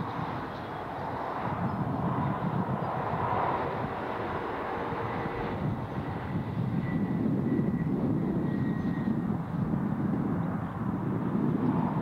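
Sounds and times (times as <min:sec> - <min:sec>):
distant diesel locomotive drone: 0:00.0 - 0:12.0.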